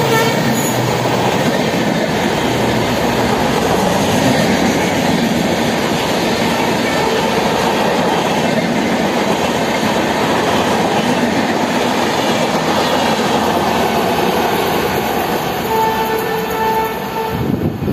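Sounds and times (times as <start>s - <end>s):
train horn: 0.0s - 0.9s, 6.9s - 7.6s, 15.5s - 17.8s
train rushing past: 0.0s - 17.9s.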